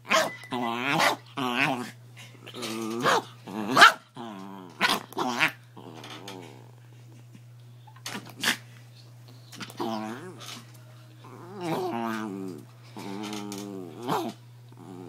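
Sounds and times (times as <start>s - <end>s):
small dog growling and snarling: 0.5s - 6.9s, 9.6s - 10.6s, 11.2s - 15.0s.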